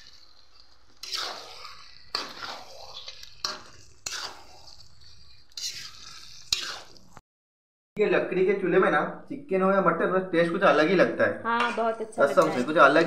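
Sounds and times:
ladle scraping metal pan: 0.0s - 7.0s.

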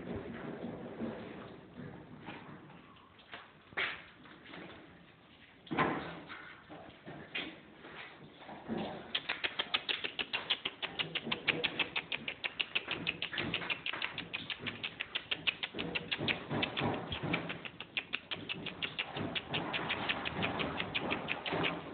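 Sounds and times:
puppy lapping water: 8.6s - 21.9s.

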